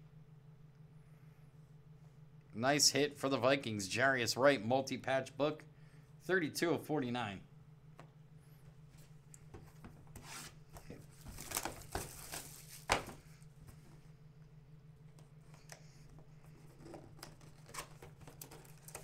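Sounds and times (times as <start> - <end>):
steady low hum: 0.0 - 19.0
packaging rustling and crinkling: 10.8 - 13.2.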